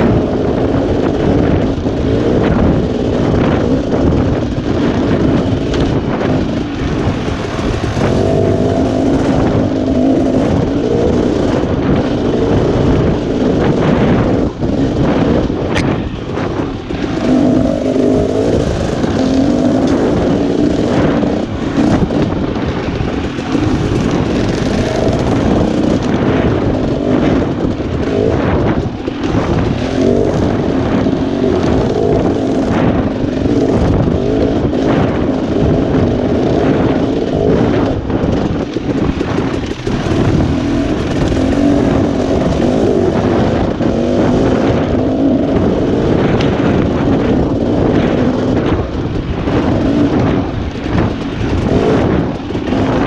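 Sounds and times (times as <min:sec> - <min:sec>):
dirt bike engine revving: 0:00.0 - 0:53.0
wind on microphone: 0:00.0 - 0:53.0.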